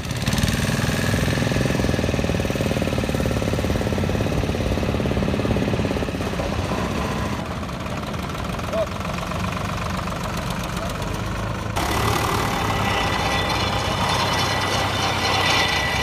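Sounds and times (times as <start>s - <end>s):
tractor diesel engine clatter: 0.0s - 16.0s.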